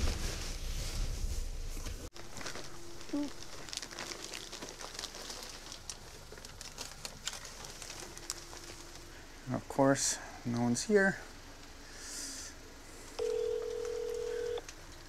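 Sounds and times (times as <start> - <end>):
plastic bag crinkling: 2.1 - 9.2.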